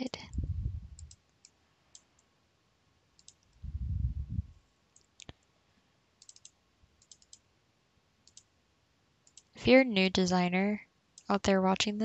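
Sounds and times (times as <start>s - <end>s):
mouse and keyboard clicks: 0.1s - 2.3s, 3.2s - 3.6s, 6.2s - 7.4s, 8.2s - 8.5s, 9.2s - 9.5s.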